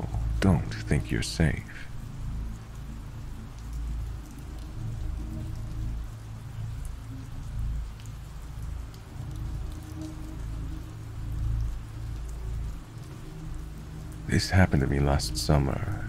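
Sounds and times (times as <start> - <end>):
low drone: 0.0 - 8.1
rain pattering: 0.0 - 16.0.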